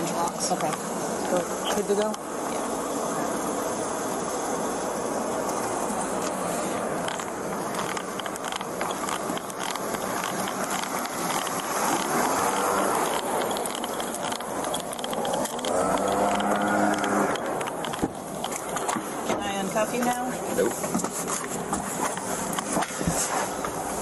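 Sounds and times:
steady hiss: 0.0s - 24.0s
gear clicking and rattling: 7.0s - 19.1s.

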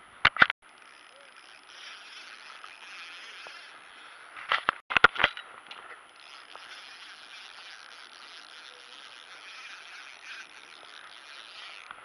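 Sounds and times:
reel clicks: 0.3s - 12.0s
fishing reel whirring: 0.6s - 4.3s, 6.1s - 12.0s.

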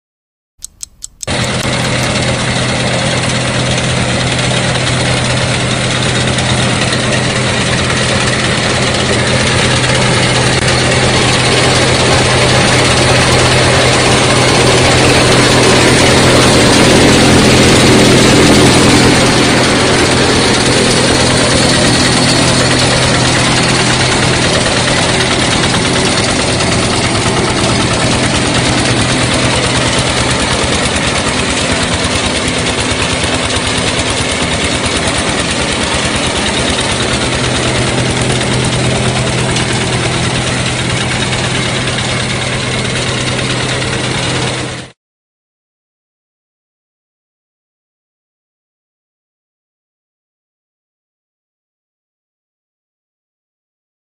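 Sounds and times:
small diesel engine running: 0.6s - 45.0s.

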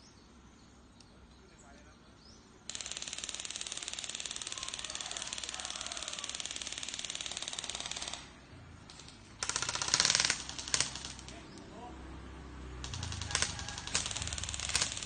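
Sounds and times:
bb gun automatic burst: 2.7s - 11.4s, 12.8s - 15.0s.

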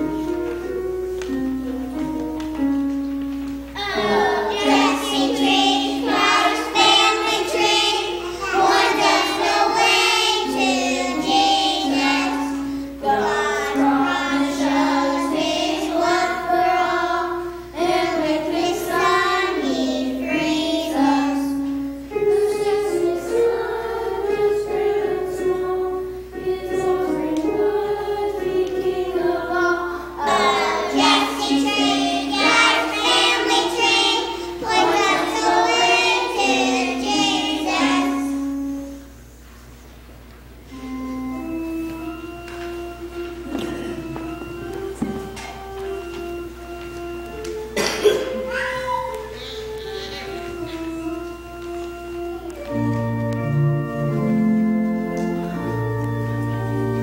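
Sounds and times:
children singing together: 3.8s - 39.1s, 47.4s - 53.5s.

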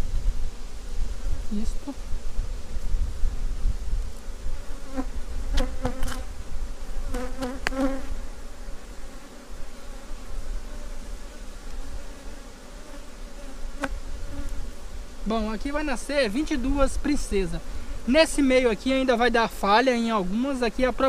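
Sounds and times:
honeybees buzzing: 0.0s - 21.0s.

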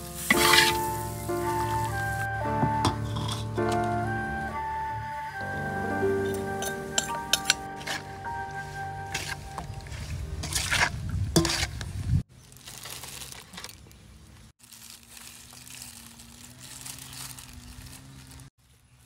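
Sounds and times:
plastic glove crinkling: 0.0s - 2.3s, 12.3s - 19.0s.

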